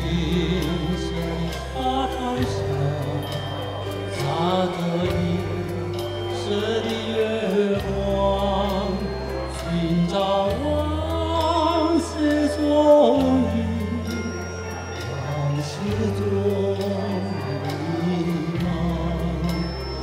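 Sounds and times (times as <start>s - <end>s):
electronic keyboard accompaniment: 0.0s - 20.0s
man singing into microphone: 0.0s - 20.0s.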